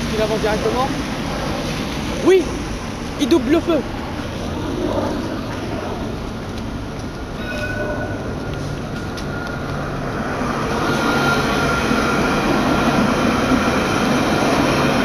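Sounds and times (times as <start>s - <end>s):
tram passing: 0.0s - 15.0s
thin steady whine: 3.9s - 15.0s.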